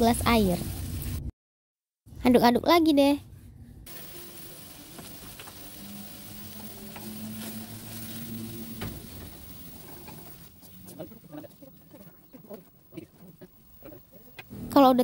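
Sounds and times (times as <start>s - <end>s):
food sizzling in a wok: 0.0s - 1.3s, 3.9s - 12.4s.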